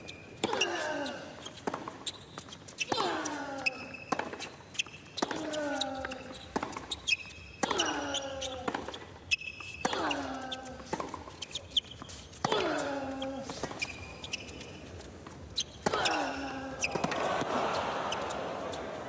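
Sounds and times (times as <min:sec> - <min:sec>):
shoe squeaks: 0:00.0 - 0:17.1
racket hitting tennis ball: 0:16.8 - 0:18.3.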